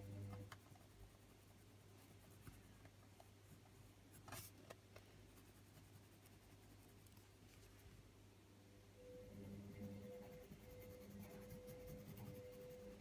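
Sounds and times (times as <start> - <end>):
steady low hum: 0.0 - 13.0
pencil scratching on paper: 3.5 - 4.6, 5.3 - 7.2, 9.6 - 13.0.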